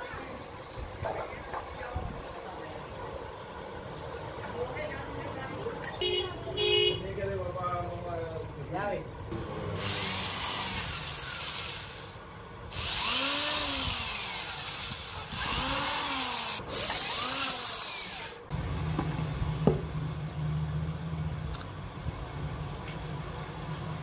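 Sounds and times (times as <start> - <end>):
electric drill boring into wood: 9.8 - 12.1, 12.7 - 18.4.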